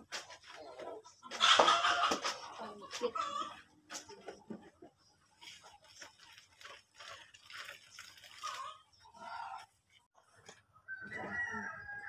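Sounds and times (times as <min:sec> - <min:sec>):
chicken clucking: 0:00.1 - 0:05.8, 0:08.4 - 0:09.6.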